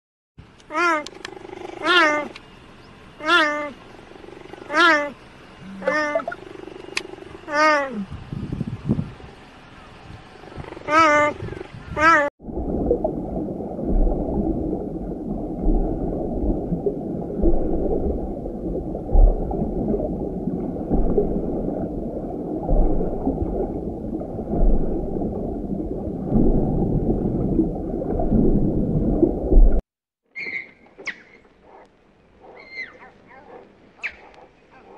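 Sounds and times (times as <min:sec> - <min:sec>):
muffled underwater rumbling wash: 0:02.4 - 0:29.8
deep low thumps: 0:12.4 - 0:29.8.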